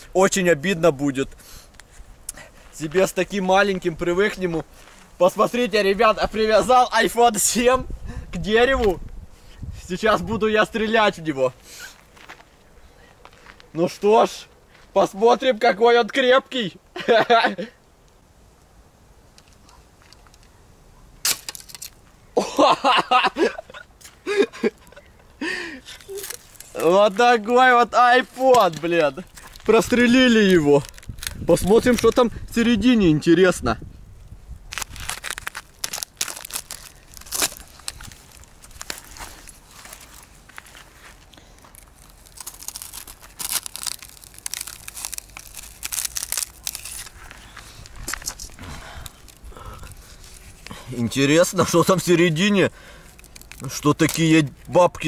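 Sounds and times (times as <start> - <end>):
spear striking phone with crack: 21.2 - 21.8
glass and casing crunching: 21.2 - 22.0, 34.8 - 40.1, 41.6 - 47.2.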